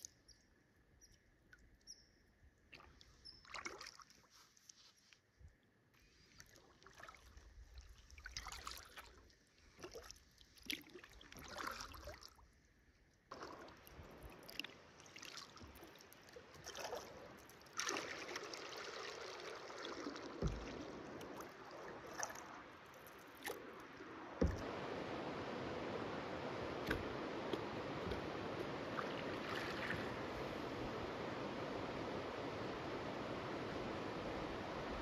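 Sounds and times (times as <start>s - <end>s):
paddle splashing in water: 2.7s - 4.3s, 6.4s - 12.4s, 13.3s - 35.0s
water rushing: 13.3s - 35.0s.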